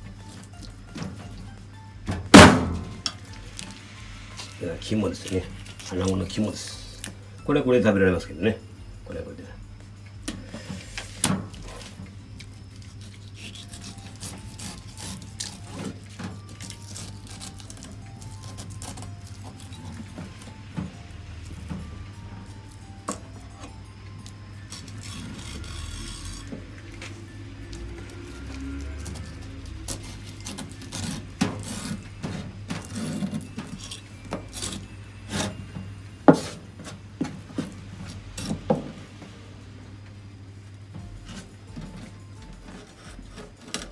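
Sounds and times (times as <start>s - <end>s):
knife scraping on bone and board: 10.7s - 20.0s, 24.7s - 26.6s, 29.0s - 35.6s.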